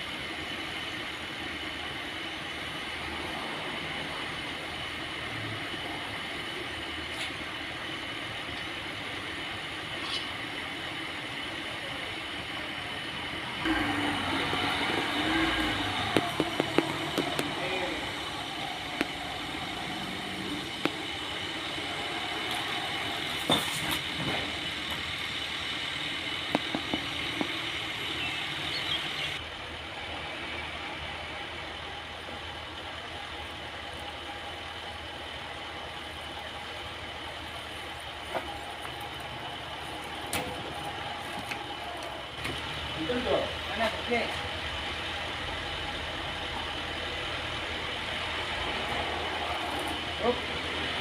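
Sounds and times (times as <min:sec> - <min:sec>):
sawmill machinery whining: 0:00.0 - 0:51.0.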